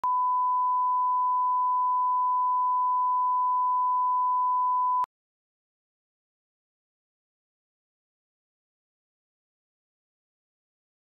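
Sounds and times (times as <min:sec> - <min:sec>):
pure reference tone: 0:00.0 - 0:05.1.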